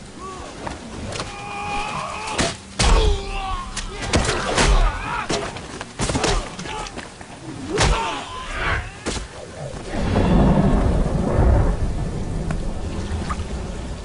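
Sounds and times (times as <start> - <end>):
heavy rain: 0.0 - 14.0
loud low rumble: 9.9 - 14.0.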